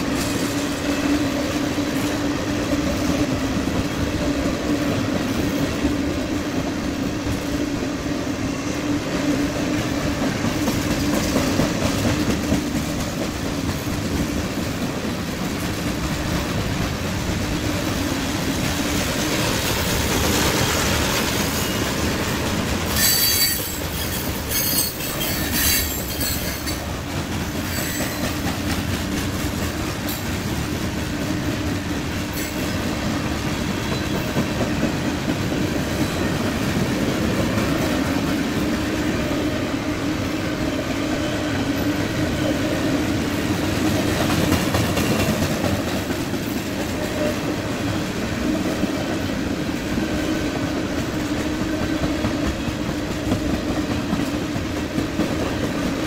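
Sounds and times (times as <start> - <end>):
train wheels rumbling and clattering: 0.0 - 56.0
metallic squeals and clanks: 23.0 - 26.8, 27.7 - 28.2.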